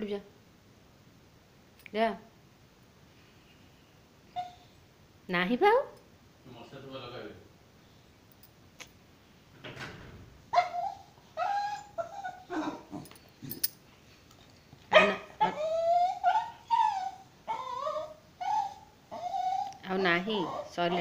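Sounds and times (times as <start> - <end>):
dog whining and yelping: 4.3 - 4.8, 10.5 - 13.7, 14.9 - 21.0.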